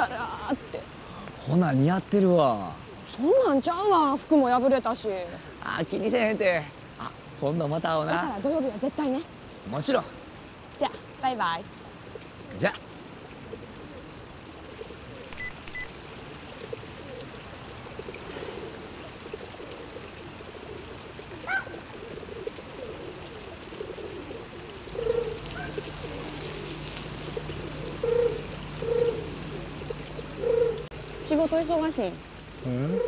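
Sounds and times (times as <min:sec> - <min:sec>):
pigeons cooing: 0:12.0 - 0:15.6, 0:16.3 - 0:32.0, 0:32.6 - 0:33.0.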